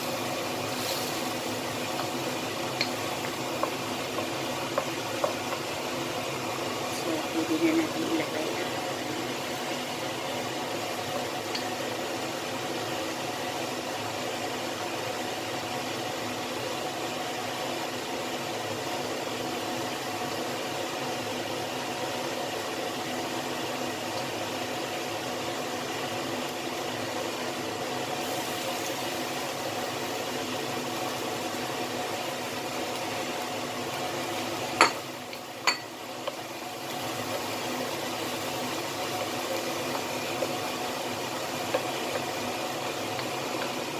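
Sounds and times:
sauce bubbling: 0.0 - 6.9, 19.7 - 43.9
sharp knocks on a wok: 34.8 - 35.0.

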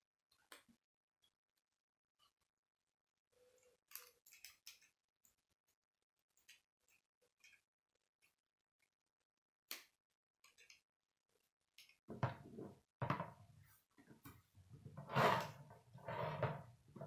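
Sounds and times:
plastic knocking and scraping on wood: 12.1 - 13.4, 14.9 - 17.0.

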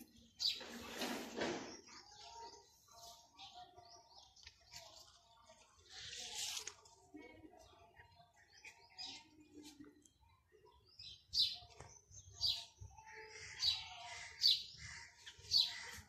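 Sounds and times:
bird chirping: 0.0 - 5.0.

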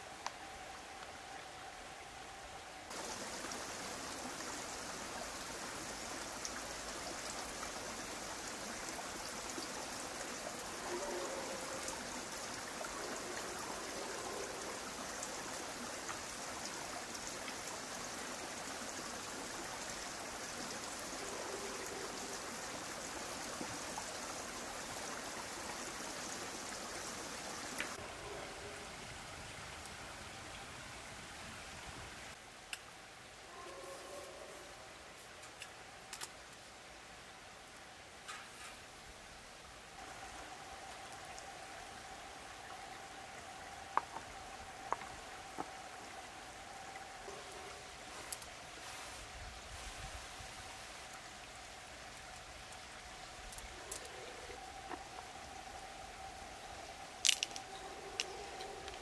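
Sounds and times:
steady rain falling: 0.0 - 59.0
raindrops ticking: 22.6 - 28.0, 40.0 - 47.0, 51.1 - 59.0.

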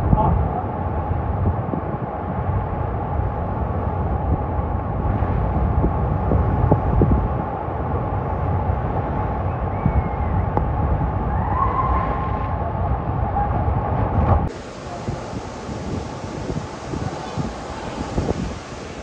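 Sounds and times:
heavy surf breaking: 0.0 - 19.0
wind buffeting microphone: 0.0 - 19.0.

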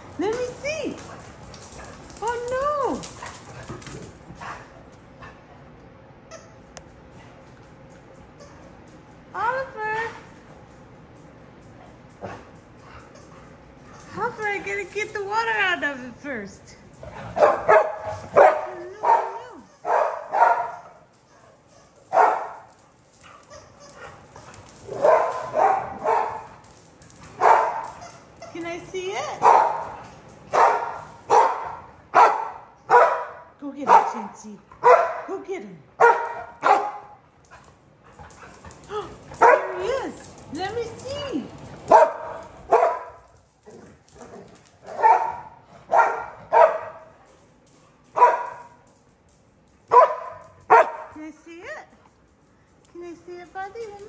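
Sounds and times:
dog barking: 17.4 - 21.0, 22.1 - 22.6, 24.9 - 26.4, 27.4 - 27.8, 29.4 - 29.9, 30.5 - 34.2, 34.8 - 35.3, 36.0 - 37.2, 39.4 - 39.9, 41.9 - 43.2, 44.3 - 47.1, 48.2 - 48.6, 49.9 - 51.1.

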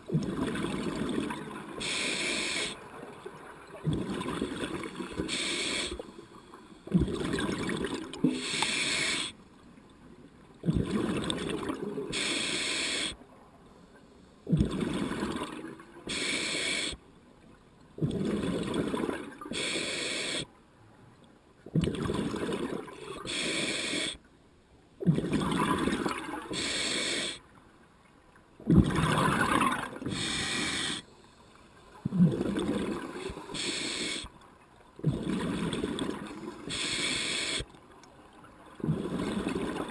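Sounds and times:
exhaled bubbles gurgling: 0.0 - 2.6, 3.6 - 6.0, 6.9 - 9.3, 10.6 - 12.3, 14.5 - 16.2, 18.0 - 19.6, 21.7 - 23.5, 25.0 - 27.4, 28.6 - 31.0, 32.0 - 34.2, 35.0 - 37.5, 38.7 - 39.9
regulator inhalation hiss: 1.8 - 2.8, 5.2 - 6.1, 8.3 - 9.4, 12.1 - 13.2, 16.1 - 17.0, 19.5 - 20.5, 23.2 - 24.2, 26.5 - 27.4, 30.1 - 31.1, 33.4 - 34.3, 36.7 - 37.7.

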